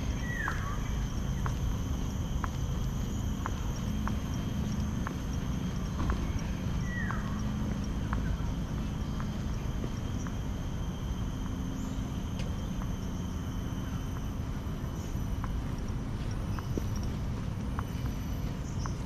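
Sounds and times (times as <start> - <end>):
footsteps on concrete: 0.0 - 19.0
insect trill: 0.0 - 19.0
steady low rumble: 0.0 - 19.0.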